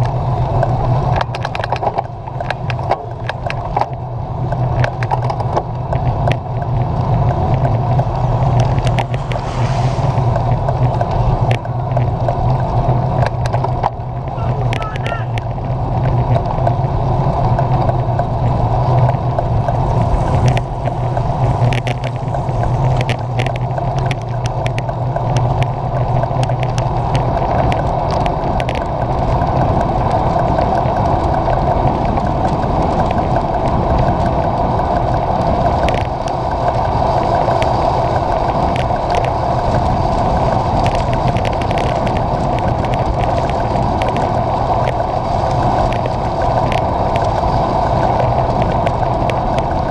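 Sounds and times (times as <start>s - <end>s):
small clicks and rattles: 0.0s - 9.5s, 10.3s - 49.9s
wind and road noise: 0.0s - 49.9s
low drone: 5.5s - 13.2s.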